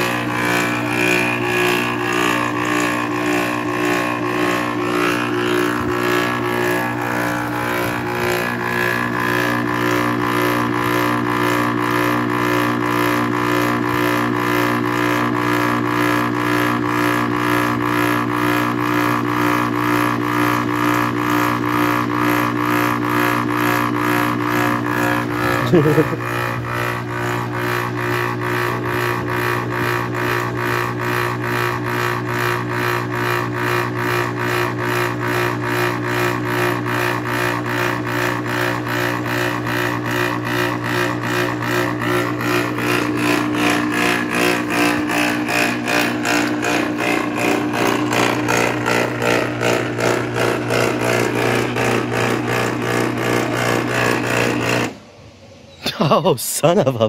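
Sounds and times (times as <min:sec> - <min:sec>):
compressor electrical hum pulsing: 0:00.0 - 0:57.0.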